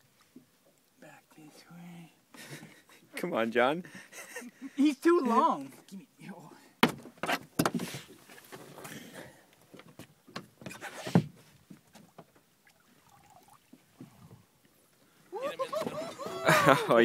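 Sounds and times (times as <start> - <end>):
sharp knocks on a boat: 6.8 - 7.9.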